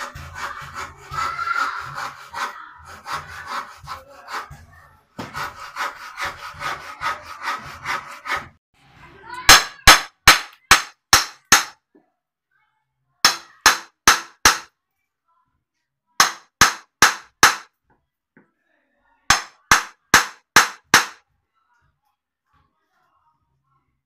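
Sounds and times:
hammer striking wood: 9.5s - 11.8s, 13.2s - 14.7s, 16.2s - 17.7s, 19.3s - 21.2s.

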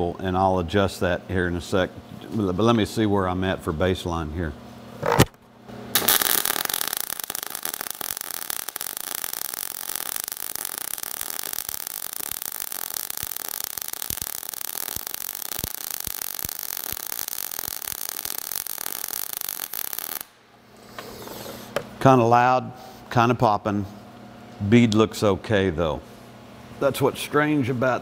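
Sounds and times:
welding arc hissing and popping: 6.0s - 21.2s.

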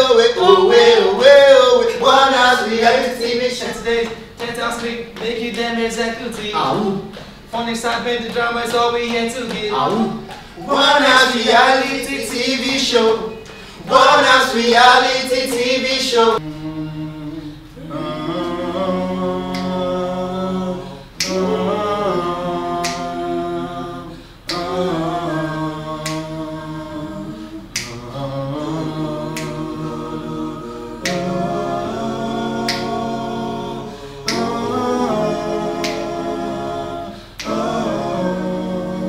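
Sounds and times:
group singing a cappella: 0.0s - 39.0s
finger snaps: 19.5s - 19.8s, 21.2s - 21.5s, 22.8s - 23.1s, 24.4s - 24.7s, 26.0s - 26.3s, 27.7s - 28.0s, 29.3s - 29.6s, 31.0s - 31.3s, 32.7s - 32.9s, 34.3s - 34.5s, 35.8s - 36.1s, 37.4s - 37.6s.

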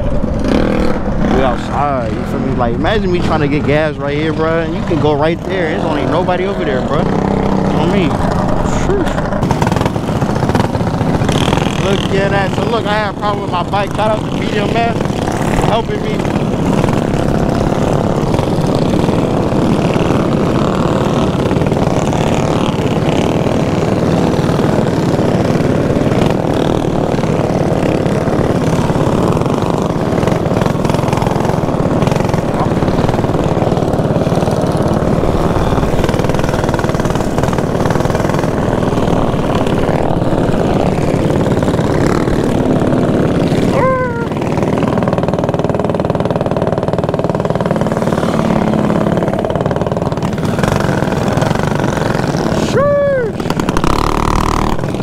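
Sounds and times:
mini bike engines running: 0.0s - 55.0s
wind noise on microphone: 6.8s - 44.3s.

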